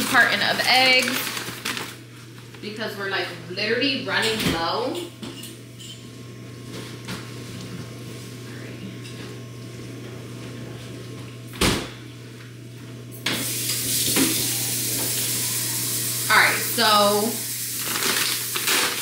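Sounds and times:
low steady hum: 0.0 - 17.9
tap water running into sink: 13.3 - 18.6.

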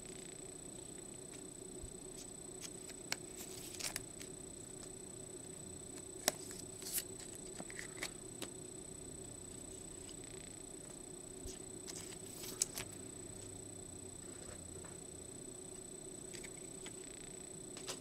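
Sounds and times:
faint hum: 0.0 - 18.0
thin high whine: 0.0 - 18.0
cards rustling: 2.6 - 4.3, 6.2 - 8.5, 11.5 - 13.0.

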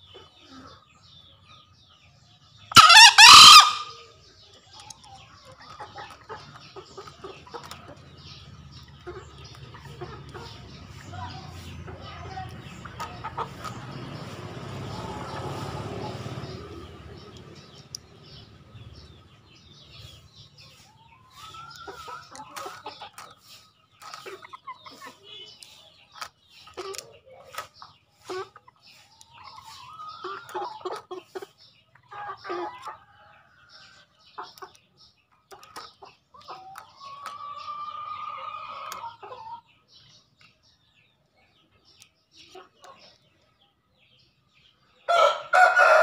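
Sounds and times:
rooster crowing: 2.7 - 4.0, 45.1 - 46.0
rooster clucking: 2.7 - 4.1, 8.9 - 16.6
junglefowl rising call: 2.8 - 4.0.

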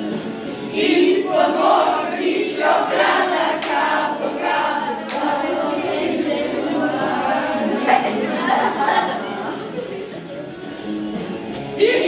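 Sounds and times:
group of voices singing: 0.0 - 12.0
sharp taps or claps: 3.6 - 3.9, 4.5 - 5.4.

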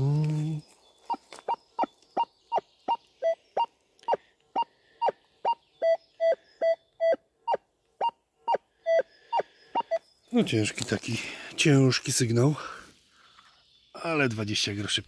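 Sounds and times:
metal detector beeping: 1.1 - 10.0.

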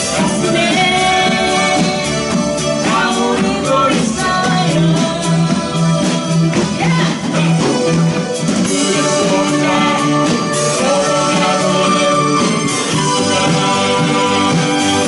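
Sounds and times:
bass guitar: 0.0 - 15.0
electric guitars: 0.0 - 15.0
woman singing into a microphone: 0.1 - 7.8.

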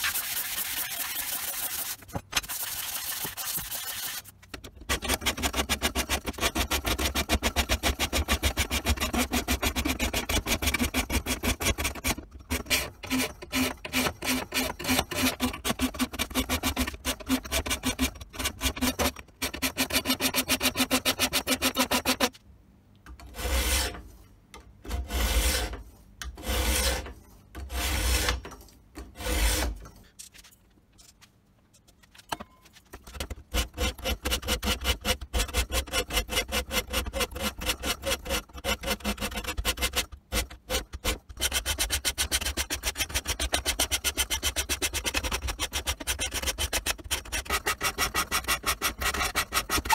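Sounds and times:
file rasping on steel blade: 4.9 - 22.4, 23.2 - 24.0, 24.9 - 29.8, 33.5 - 49.9.

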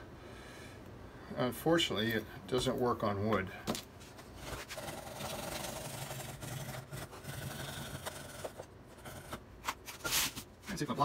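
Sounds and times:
saw rasping through wood: 4.6 - 9.4.

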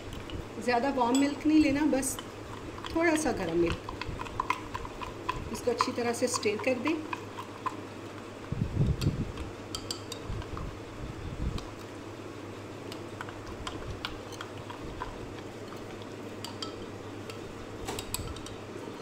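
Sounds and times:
spoon clinking in a ceramic mug: 1.1 - 2.3, 9.7 - 10.2, 16.4 - 17.4, 18.0 - 18.6.

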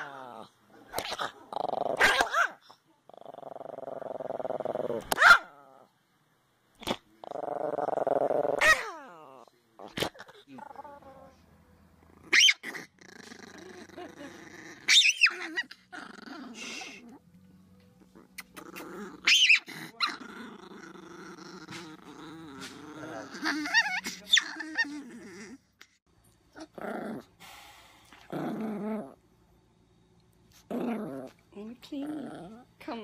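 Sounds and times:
small dog growling: 0.0 - 2.2, 3.0 - 5.9, 6.8 - 11.4, 12.0 - 17.3, 18.0 - 27.3, 28.2 - 29.2, 30.5 - 32.8
dog high-pitched outbursts: 5.2 - 5.5, 12.3 - 12.7, 14.9 - 15.7, 19.2 - 19.7.

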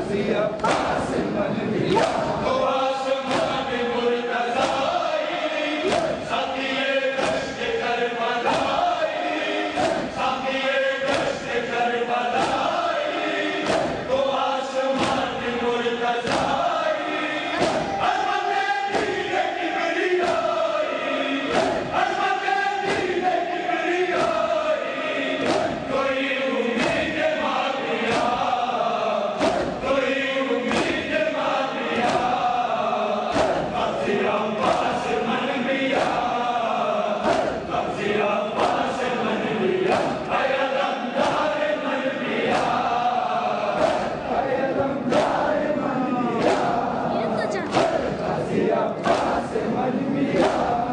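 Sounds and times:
men chanting in unison: 0.0 - 50.9
hands slapping chests: 0.6 - 1.0, 1.9 - 2.4, 3.3 - 3.6, 4.6 - 5.0, 5.8 - 6.3, 7.2 - 7.5, 9.7 - 10.2, 11.0 - 11.4, 13.6 - 14.1, 16.2 - 16.6, 17.6 - 18.1, 18.9 - 19.3, 21.5 - 21.9, 25.4 - 25.9, 29.4 - 29.9, 30.7 - 31.1, 32.0 - 32.4, 33.3 - 33.8, 37.2 - 37.7, 41.2 - 41.6, 42.4 - 43.0, 43.7 - 44.3, 45.1 - 45.5, 46.4 - 46.8, 47.6 - 48.2, 49.0 - 49.5, 50.3 - 50.8
chest-beating slaps: 0.6 - 1.2, 1.9 - 2.6, 3.2 - 3.8, 4.6 - 5.1, 5.8 - 7.7, 8.4 - 9.0, 9.7 - 10.3, 11.0 - 11.6, 12.3 - 13.0, 13.6 - 14.2, 15.0 - 15.4, 16.2 - 16.7, 17.5 - 18.3, 18.9 - 19.4, 20.2 - 20.6, 21.4 - 22.1, 22.8 - 23.3, 24.1 - 24.6, 25.4 - 26.1, 26.8 - 27.3, 28.0 - 28.7, 29.4 - 32.5, 33.3 - 34.0, 34.6 - 35.2, 35.9 - 36.4, 37.2 - 37.8, 38.6 - 41.7, 42.3 - 44.5, 45.1 - 45.5, 46.4 - 46.8, 47.6 - 48.4, 49.0 - 49.6, 50.3 - 50.8.

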